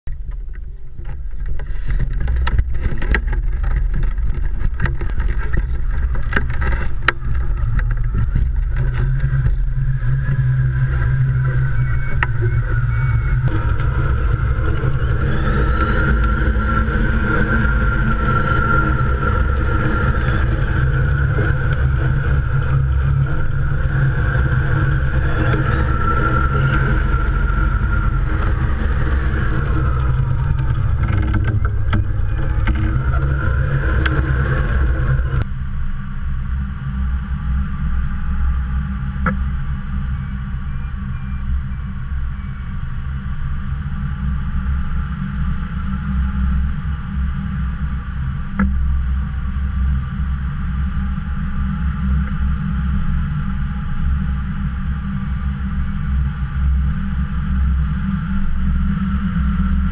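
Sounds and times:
wind rumble on microphone: 0.0 - 59.9
knocks and rattles: 0.1 - 10.3, 24.8 - 35.4
high wind whistle: 6.4 - 35.8.

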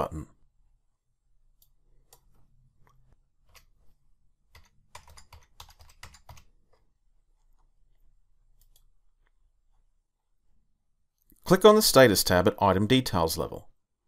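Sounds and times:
faint computer keyboard typing: 1.6 - 9.4.

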